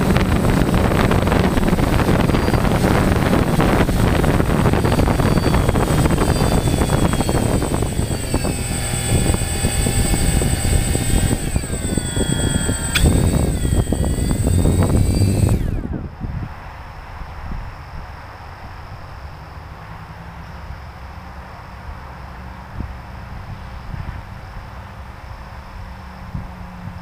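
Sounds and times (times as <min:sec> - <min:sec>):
drone motors whining: 0:00.0 - 0:16.3
sharp click: 0:12.6 - 0:13.8.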